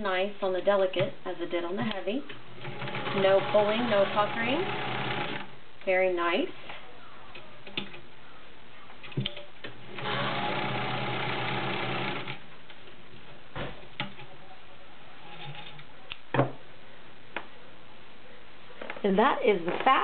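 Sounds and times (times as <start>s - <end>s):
sewing machine stitching: 2.6s - 5.5s, 9.9s - 12.4s.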